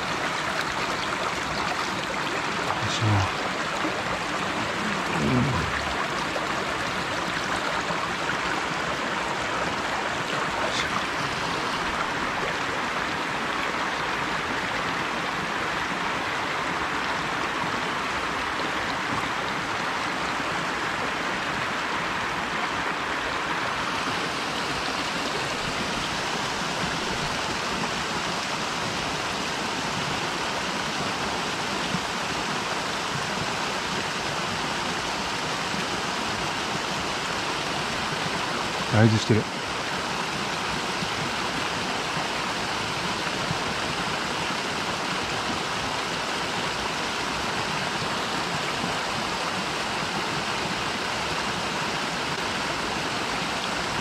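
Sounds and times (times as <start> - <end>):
water spilling over a weir: 0.0 - 14.6
stream rushing: 0.0 - 54.0.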